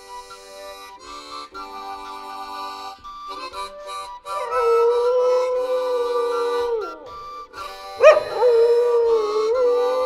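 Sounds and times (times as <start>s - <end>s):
harmonica notes: 0.0s - 10.0s
dog howling: 4.3s - 10.0s.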